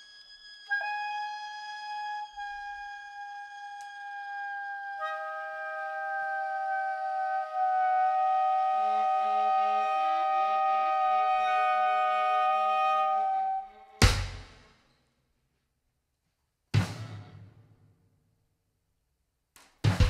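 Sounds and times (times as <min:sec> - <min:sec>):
saxophones and viola held notes: 0:00.0 - 0:14.0
loud drum hit: 0:14.0 - 0:14.7.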